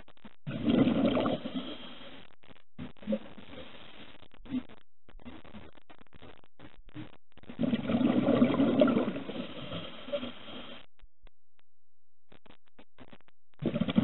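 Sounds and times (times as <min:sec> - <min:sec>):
underwater breath bubbling: 0:00.5 - 0:02.2, 0:07.5 - 0:10.9, 0:13.6 - 0:14.0.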